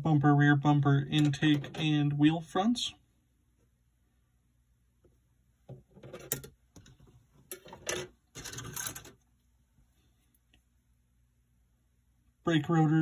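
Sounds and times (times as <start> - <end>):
plastic parts rattling: 7.5 - 9.2.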